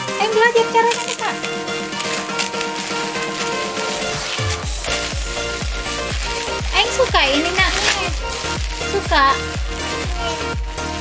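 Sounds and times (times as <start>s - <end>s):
background music melody: 0.0s - 11.0s
deep bass beat: 4.6s - 11.0s.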